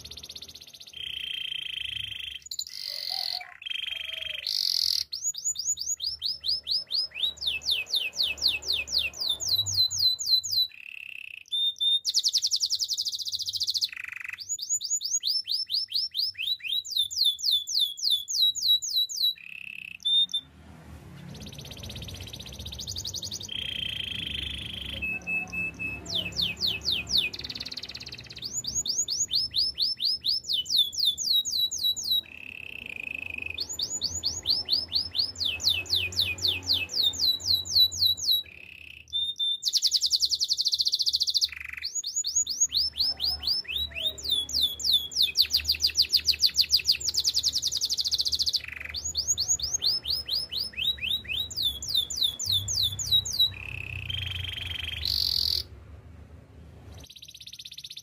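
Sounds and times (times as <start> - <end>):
canary singing: 0.0 - 56.0, 56.7 - 58.0.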